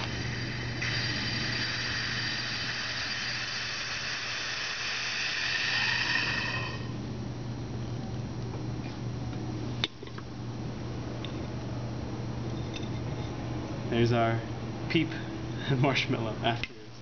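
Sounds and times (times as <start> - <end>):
air hissing and whistling: 0.0 - 7.0
low steady hum: 0.0 - 17.0.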